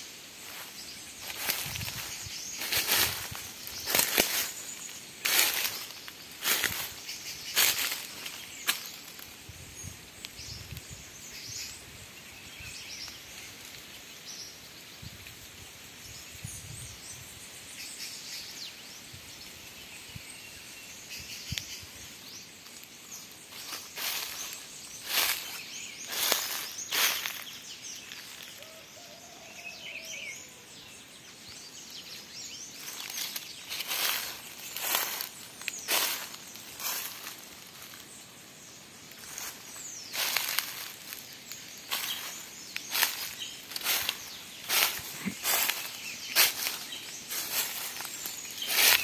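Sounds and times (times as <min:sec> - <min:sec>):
footsteps crunching dry leaves: 0:00.0 - 0:09.5, 0:22.2 - 0:29.4, 0:32.6 - 0:49.0
faint bird chirps: 0:00.0 - 0:49.0.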